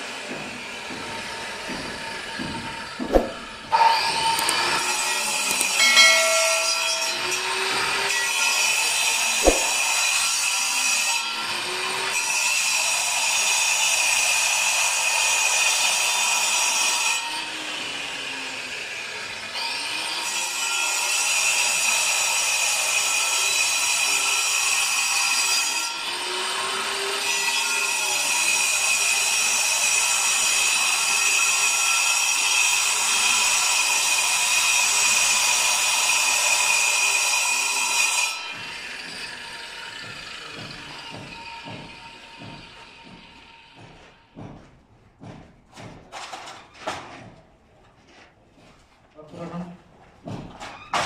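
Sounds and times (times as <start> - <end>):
angle grinder cutting concrete: 7.1 - 41.0.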